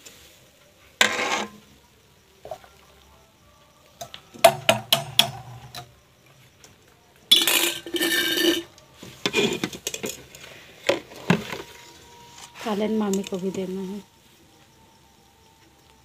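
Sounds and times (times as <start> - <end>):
metal vessels clinking and scraping: 1.0 - 1.7, 4.0 - 5.9, 7.3 - 12.6.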